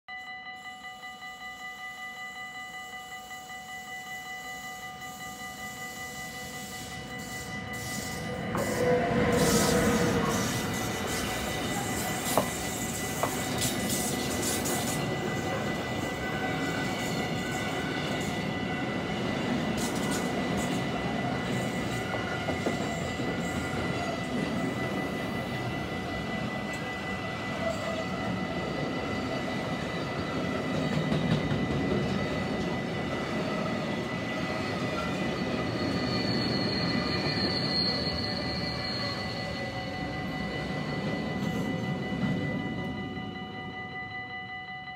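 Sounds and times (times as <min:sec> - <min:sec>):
electric locomotive passing: 0:00.1 - 0:44.9
train wheels rumbling and clicking: 0:07.8 - 0:39.3.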